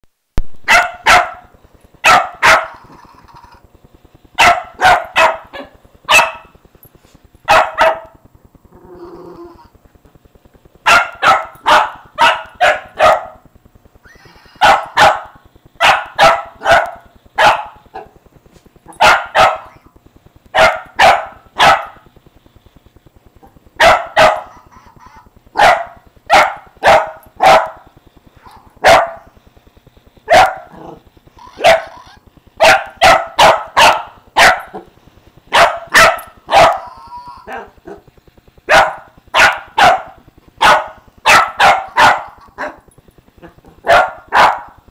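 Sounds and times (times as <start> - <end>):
small dog barking: 0.7 - 2.8, 4.4 - 6.5, 7.5 - 8.2, 10.8 - 13.4, 14.6 - 18.1, 19.0 - 19.9, 20.5 - 22.0, 23.8 - 24.6, 25.6 - 27.9, 28.5 - 29.3, 30.3 - 32.0, 32.6 - 34.8, 35.5 - 38.0, 38.7 - 42.8, 43.5 - 44.8.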